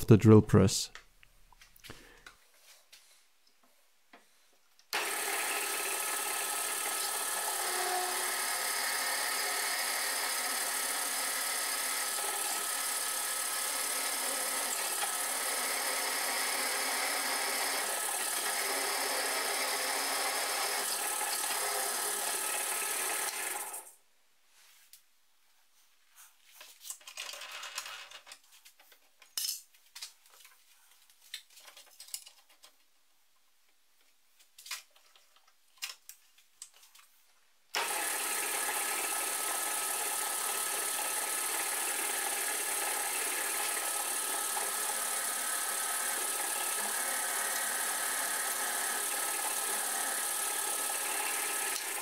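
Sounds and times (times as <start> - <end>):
drill press boring steel: 5.0 - 23.9, 37.8 - 52.0
tools clicking and scraping: 26.6 - 30.6, 31.3 - 32.8.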